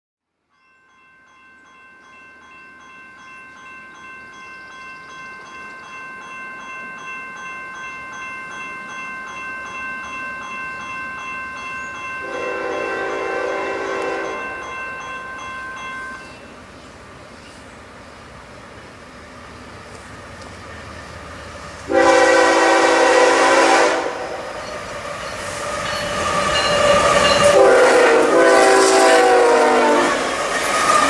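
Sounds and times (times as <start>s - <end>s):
rails ringing with high tones: 0.5s - 31.0s
freight train approaching: 0.6s - 31.0s
locomotive horn: 12.2s - 14.6s, 21.9s - 24.6s, 27.0s - 30.4s.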